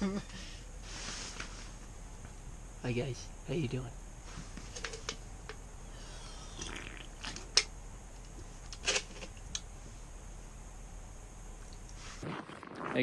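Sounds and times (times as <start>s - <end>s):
handling clicks and rustles: 4.3s - 5.6s.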